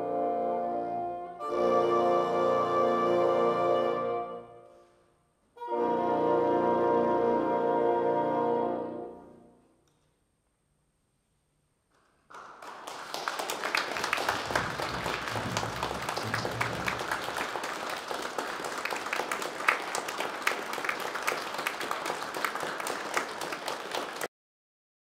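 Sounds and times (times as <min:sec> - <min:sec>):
audience applauding: 0:12.0 - 0:24.3.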